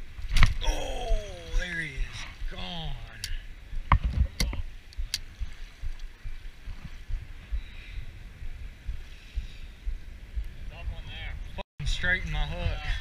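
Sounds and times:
wind buffeting microphone: 0.0s - 13.0s
sharp clicks: 3.1s - 6.2s.

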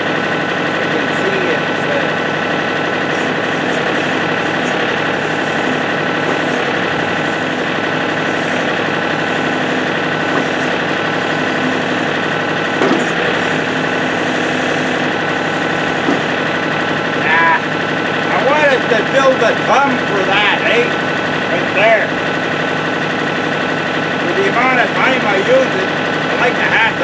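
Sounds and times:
diesel tractor engine running: 0.0s - 27.0s.

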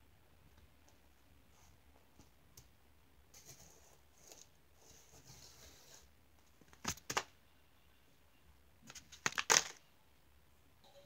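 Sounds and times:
paper crinkling and rustling: 8.8s - 9.8s.

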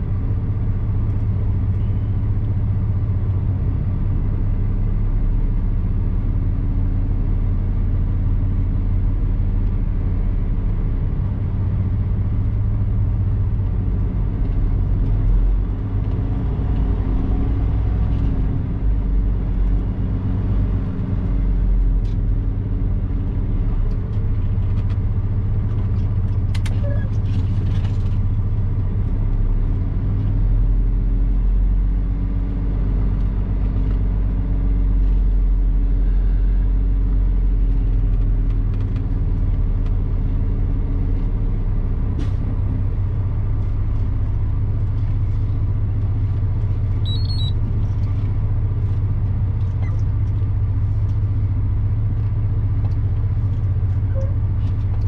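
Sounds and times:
diesel truck engine droning: 0.0s - 55.0s.

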